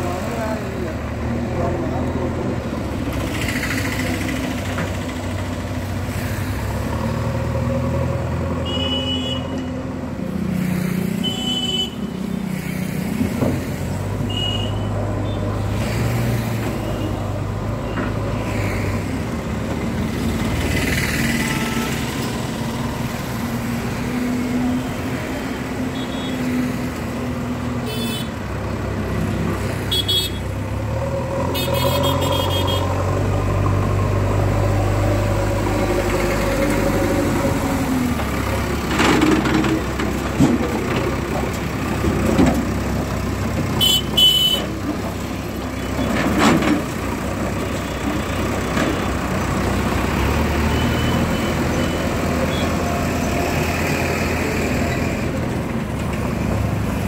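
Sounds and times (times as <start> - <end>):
road traffic passing: 0.0 - 57.0
vehicle horn toots: 8.6 - 9.5, 31.6 - 32.9, 43.8 - 44.7.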